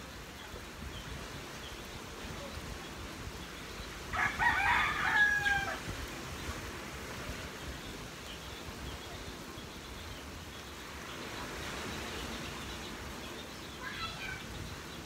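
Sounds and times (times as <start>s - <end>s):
rooster crowing: 4.1s - 5.9s.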